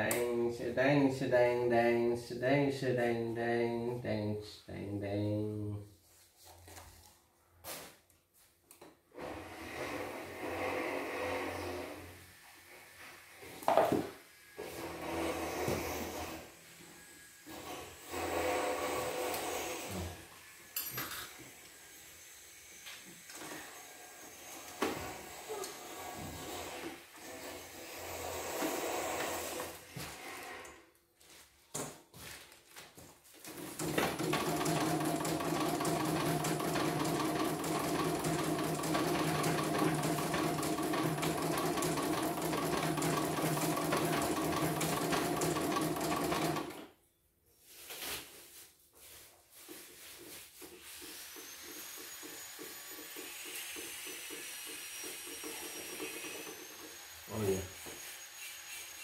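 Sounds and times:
embroidery machine stitching: 18.0s - 19.9s, 33.5s - 46.8s.

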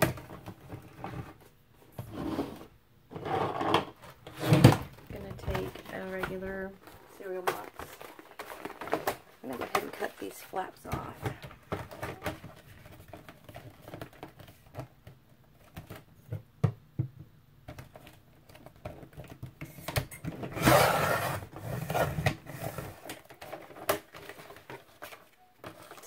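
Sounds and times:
cardboard tapping and rustling: 4.0s - 20.5s.

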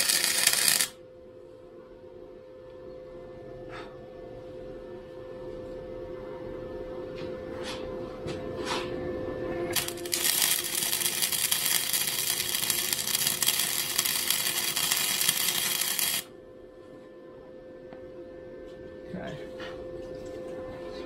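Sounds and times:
arc welder crackling: 0.0s - 1.0s, 9.7s - 16.3s.

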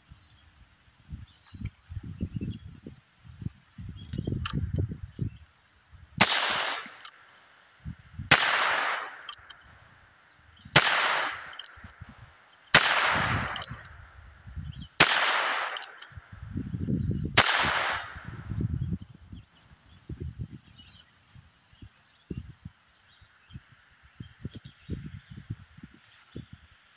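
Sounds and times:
gunshots with echo: 6.2s - 7.1s, 8.3s - 9.5s, 10.8s - 11.9s, 12.7s - 13.9s, 15.0s - 16.1s, 17.4s - 18.4s
revolver hammer clicks: 6.8s - 7.4s, 8.8s - 9.6s, 11.2s - 12.0s, 13.3s - 14.0s, 15.5s - 16.1s.

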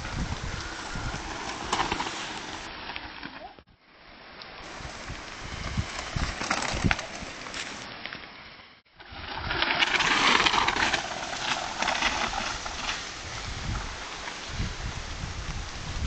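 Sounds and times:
bikes rattling and clicking: 0.0s - 3.6s, 4.6s - 8.4s, 9.0s - 16.0s
bike tyres rolling over dirt: 0.0s - 16.0s.

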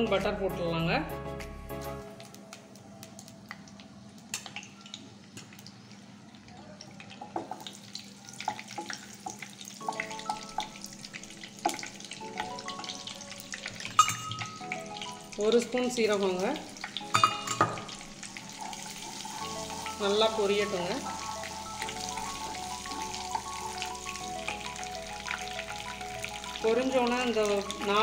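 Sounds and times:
butter sizzling in hot oil: 7.5s - 28.0s.

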